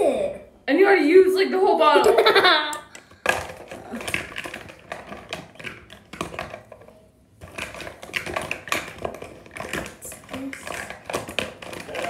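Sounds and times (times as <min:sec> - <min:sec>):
plastic items clicking and tapping: 0:02.7 - 0:12.0.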